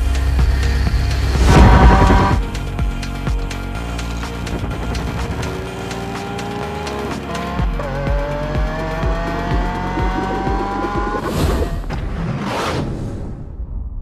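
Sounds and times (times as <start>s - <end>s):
car engine accelerating: 0.0s - 2.8s, 3.4s - 11.8s
music with steady beat: 0.0s - 11.3s
loud whooshes: 0.4s - 2.6s.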